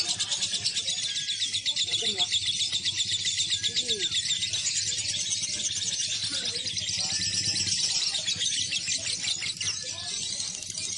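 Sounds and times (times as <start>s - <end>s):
lovebirds chattering: 0.0s - 10.9s.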